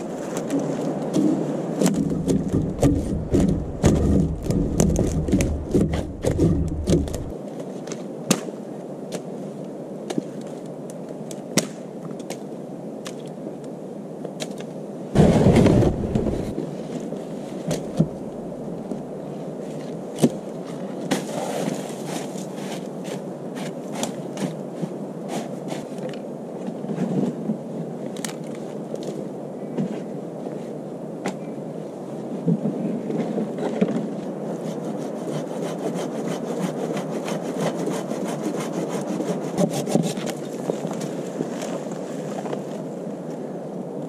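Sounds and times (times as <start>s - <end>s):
wooden logs knocking: 1.8s - 7.3s, 15.2s - 16.5s, 17.7s - 18.7s
hand saw cutting branch: 34.6s - 40.6s.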